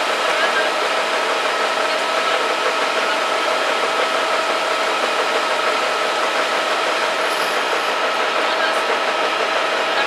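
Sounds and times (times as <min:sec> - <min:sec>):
fire engine idling with whine: 0:00.0 - 0:10.0.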